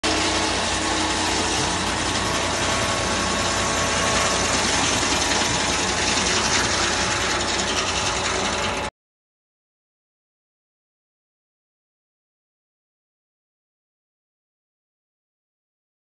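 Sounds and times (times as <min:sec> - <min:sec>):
circular sawmill running: 0:00.0 - 0:08.9.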